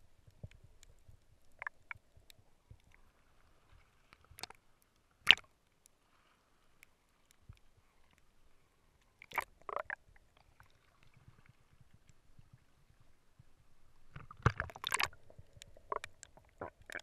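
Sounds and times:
muffled underwater knocks and clicks: 14.1 - 17.0
water splashing: 14.1 - 17.0.

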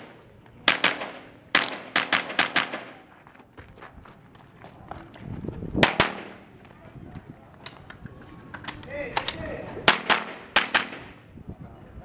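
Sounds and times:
rifle shots: 0.0 - 3.0, 5.8 - 6.4, 9.2 - 11.2.

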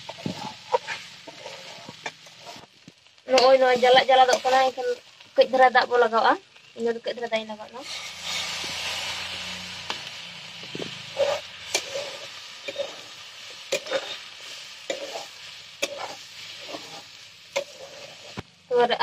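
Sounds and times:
metal spatula scraping pan: 0.0 - 2.7, 7.8 - 18.4
vegetables sizzling in oil: 0.0 - 19.0.

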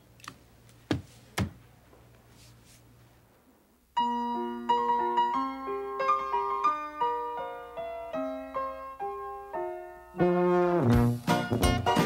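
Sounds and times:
keyboard music: 4.0 - 12.0.

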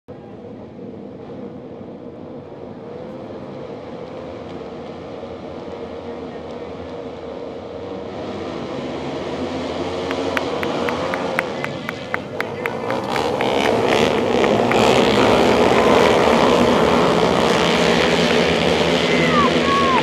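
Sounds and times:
motorbikes idling and revving: 0.1 - 20.0.

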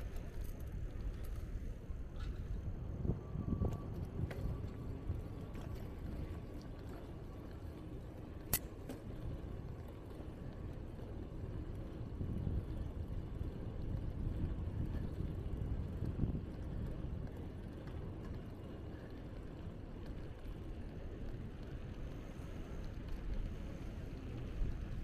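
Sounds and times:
bicycle road noise: 0.0 - 25.0
wind on microphone: 2.0 - 6.3, 12.0 - 17.3.

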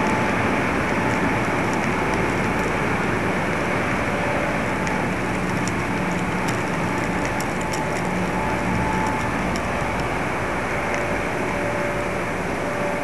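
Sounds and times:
faint hum: 0.0 - 13.0
steady rushing noise: 0.0 - 13.0
light ticks: 4.8 - 10.1.

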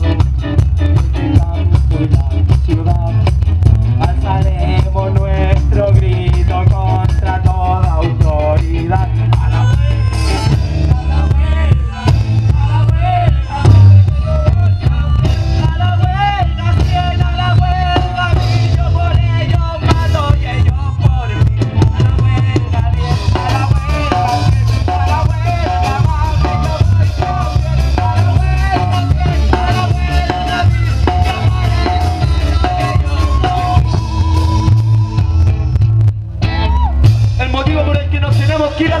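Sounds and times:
live rock band playing: 0.0 - 39.0.

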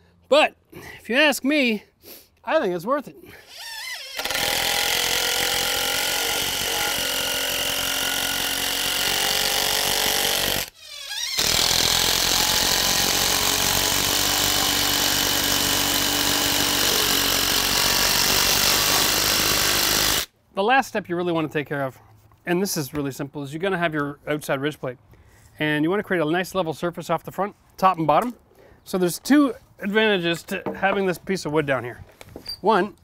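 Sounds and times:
impact driver driving screw into wood: 3.6 - 20.3.

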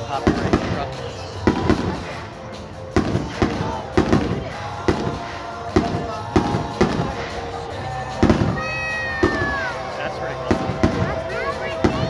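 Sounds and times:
fireworks bursting with sharp bangs: 0.0 - 12.0.

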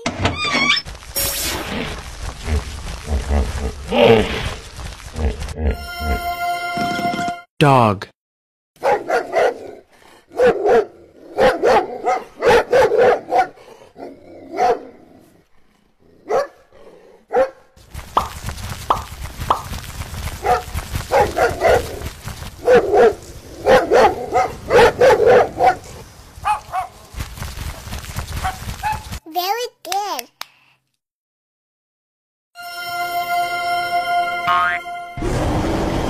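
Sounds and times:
dog barking: 8.8 - 13.6, 14.5 - 14.9, 16.2 - 16.6, 17.3 - 17.7, 20.4 - 27.0.

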